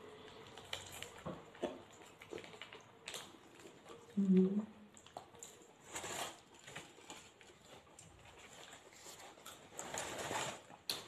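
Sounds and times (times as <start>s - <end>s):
chewing and mouth sounds: 0.0s - 11.0s
paper wrapper rustling: 5.8s - 11.0s.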